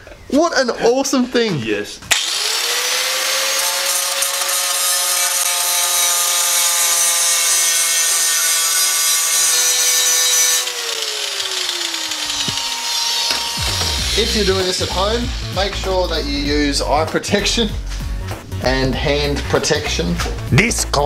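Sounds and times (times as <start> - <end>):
grinder disc winding down: 2.1 - 16.4
angle grinder cutting metal: 2.1 - 16.7.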